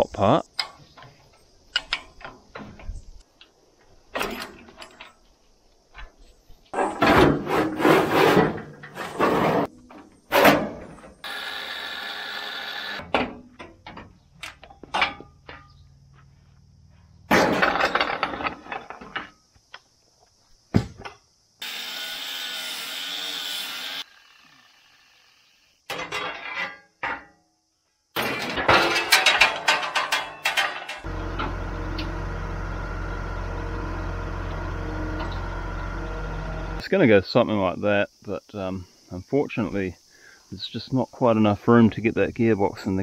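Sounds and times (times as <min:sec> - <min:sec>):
electric angle grinder: 0:11.2 - 0:13.0, 0:21.6 - 0:25.7
steel parts clanking: 0:28.2 - 0:32.2.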